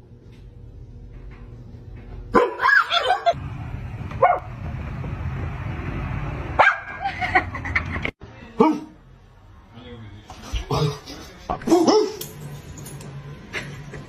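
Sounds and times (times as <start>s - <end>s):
dogs barking: 2.3s - 3.4s, 4.2s - 4.5s, 6.6s - 7.0s.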